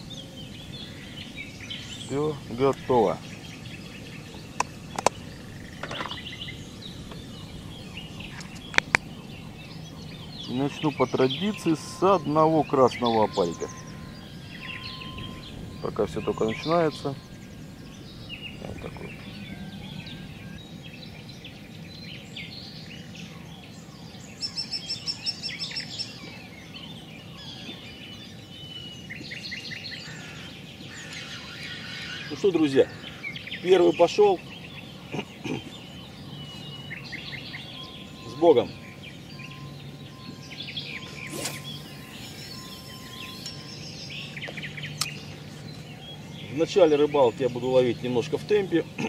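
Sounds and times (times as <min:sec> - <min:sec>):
birds chirping: 0:00.0 - 0:49.0
low outdoor background noise: 0:00.0 - 0:49.0
rapid high chirps: 0:37.4 - 0:45.3.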